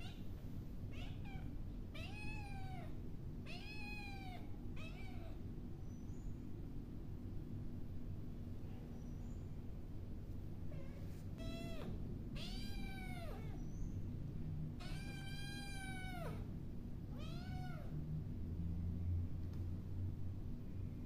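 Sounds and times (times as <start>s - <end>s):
cat meowing: 0.9s - 5.4s, 10.7s - 13.7s, 14.8s - 16.5s, 17.1s - 17.9s.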